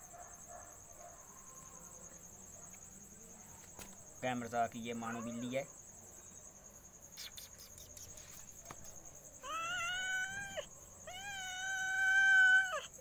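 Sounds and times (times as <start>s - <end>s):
cat meowing: 9.4s - 12.9s.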